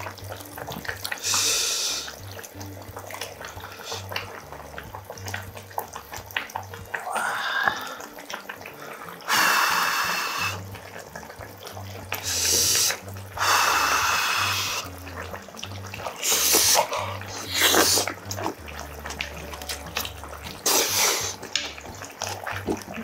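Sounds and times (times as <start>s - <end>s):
quiet chewing: 0.0s - 1.5s, 14.8s - 23.0s
loud slurping: 12.1s - 23.0s.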